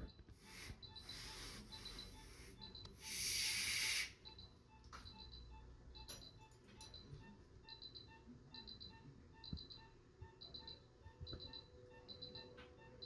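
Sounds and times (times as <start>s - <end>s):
patient monitor beeps: 0.0s - 13.0s
hissing air bursts: 0.4s - 4.2s.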